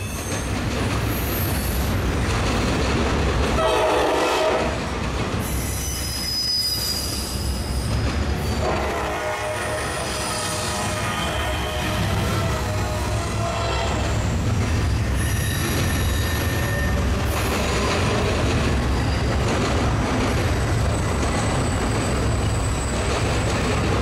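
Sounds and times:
train wheels rumbling on rail: 0.0 - 24.0
high-pitched wheel squeals: 5.5 - 8.6, 15.1 - 17.1.

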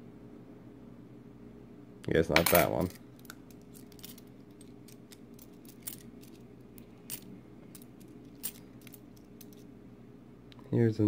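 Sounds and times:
steady low hum: 0.0 - 11.0
coins clicking together: 2.4 - 9.7.

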